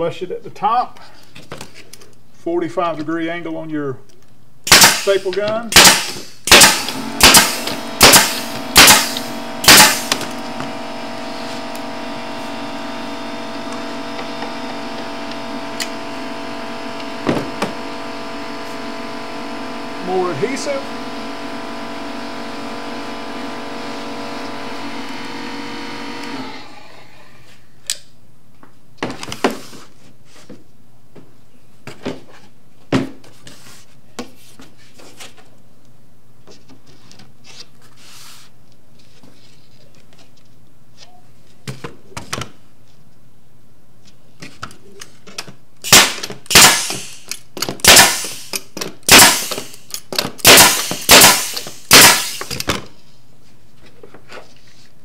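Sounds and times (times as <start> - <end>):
pneumatic staple gun shots: 4.7 - 10.5, 45.8 - 52.8
motor hum: 6.5 - 27.4.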